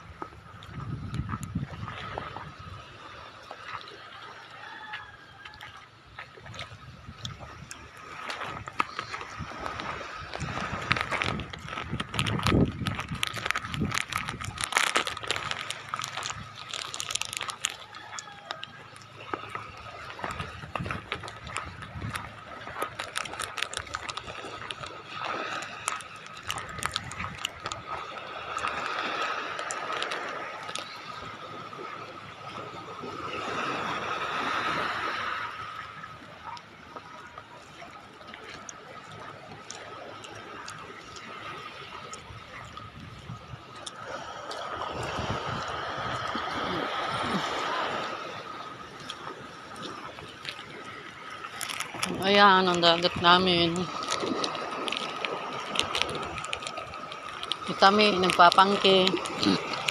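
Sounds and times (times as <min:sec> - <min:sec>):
footsteps on wet mud: 0:00.0 - 0:02.6, 0:04.6 - 0:31.4, 0:48.9 - 0:59.9
sea water rushing: 0:00.0 - 0:59.9.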